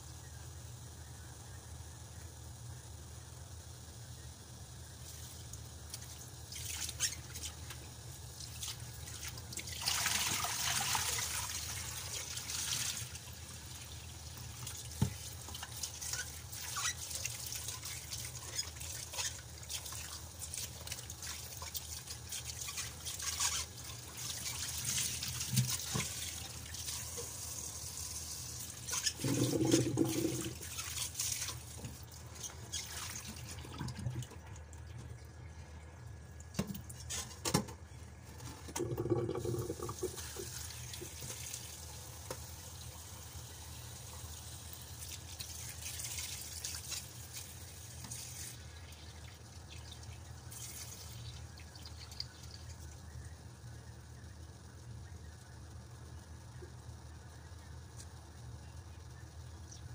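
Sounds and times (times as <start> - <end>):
water splashing and dripping: 8.4 - 27.4, 28.5 - 35.2
tap water running into pot: 9.1 - 34.9, 38.5 - 44.2.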